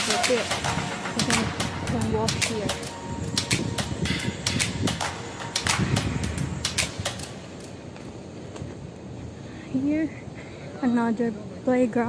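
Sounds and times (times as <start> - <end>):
low rumbling noise: 0.0 - 10.4
sharp clicks and taps: 0.2 - 8.7.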